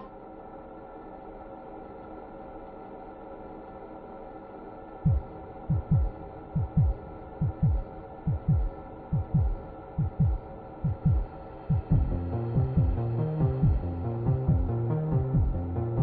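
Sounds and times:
steady droning hum: 0:00.0 - 0:16.0
heartbeat thumps: 0:05.0 - 0:15.7.

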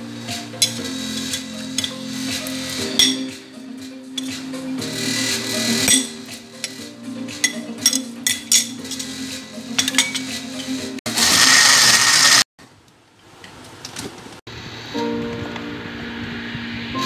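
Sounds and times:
spoon clinking blender jar: 0:09.8 - 0:10.8
electric blender running: 0:11.1 - 0:12.5.

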